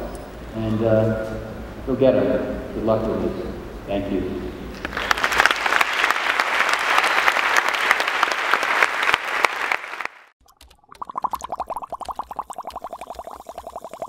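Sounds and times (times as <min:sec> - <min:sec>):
crowd applause: 0:04.8 - 0:10.3.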